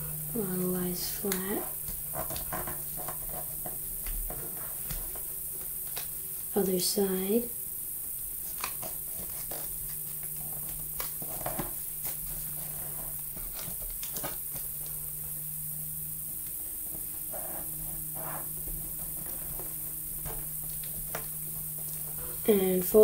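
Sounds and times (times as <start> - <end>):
faint steady hum: 0.0 - 23.0
paper rustling and crinkling: 8.4 - 15.2.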